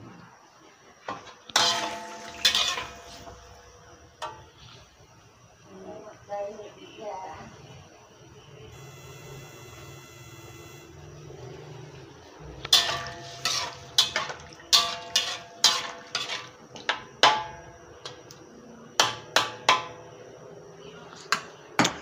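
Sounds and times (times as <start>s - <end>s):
metal spatula scraping wok: 1.6s - 3.6s, 12.6s - 16.6s.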